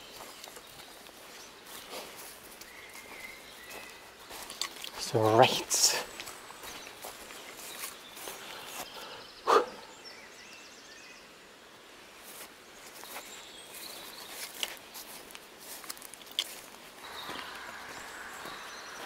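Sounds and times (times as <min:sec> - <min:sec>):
footsteps on a trail: 0:00.0 - 0:09.3, 0:12.2 - 0:19.0
faint bird calls: 0:05.9 - 0:10.5, 0:17.0 - 0:19.0.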